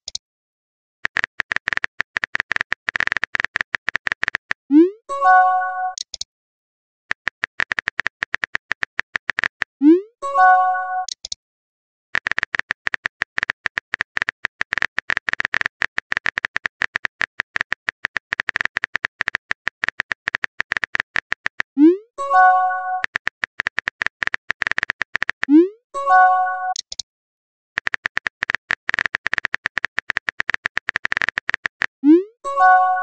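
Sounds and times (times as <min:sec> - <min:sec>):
rapid keyboard tapping: 0:01.0 - 0:04.6, 0:07.1 - 0:09.8, 0:12.2 - 0:21.8, 0:22.4 - 0:25.5, 0:27.8 - 0:32.0.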